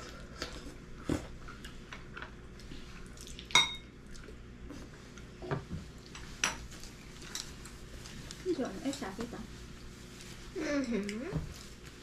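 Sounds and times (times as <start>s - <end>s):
tableware clinking on ceramic bowls: 3.6s - 3.8s.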